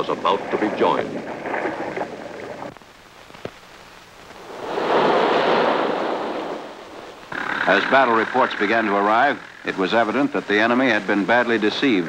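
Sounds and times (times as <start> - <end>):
film soundtrack hiss: 0.0 - 12.0
rushing surf-like noise: 4.2 - 9.4.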